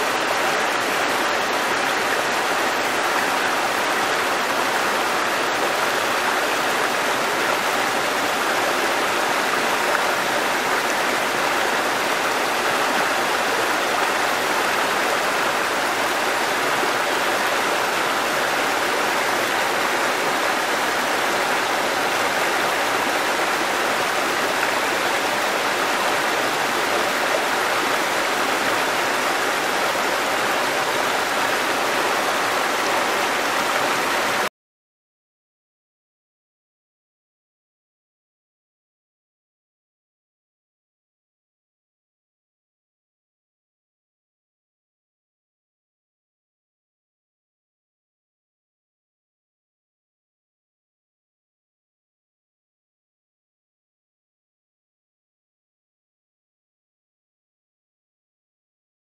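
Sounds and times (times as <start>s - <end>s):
stream rushing over rocks: 0.0s - 34.5s.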